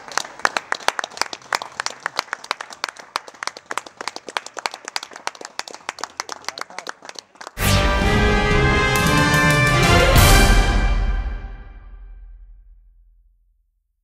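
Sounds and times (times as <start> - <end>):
people clapping: 0.0 - 7.7, 8.6 - 10.3.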